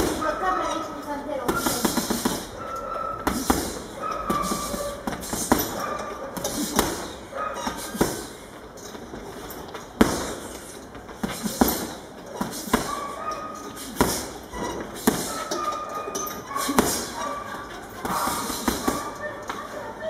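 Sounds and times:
punches on heavy bag: 1.5 - 2.5, 3.2 - 5.8, 6.4 - 8.4, 10.0 - 10.6, 11.2 - 13.1, 13.8 - 14.4, 15.0 - 15.4, 16.6 - 17.2, 18.0 - 19.1.

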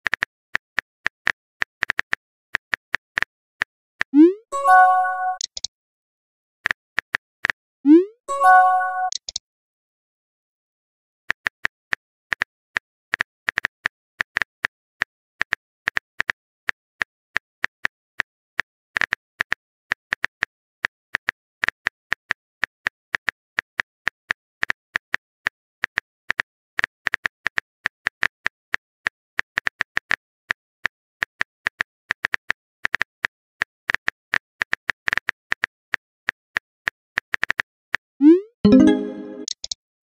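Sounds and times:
phone keyboard typing clicks: 4.8 - 5.7, 9.0 - 9.4.

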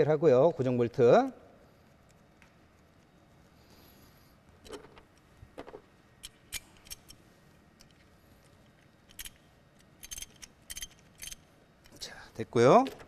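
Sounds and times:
wrench clicking on metal bolt: 10.0 - 11.4.

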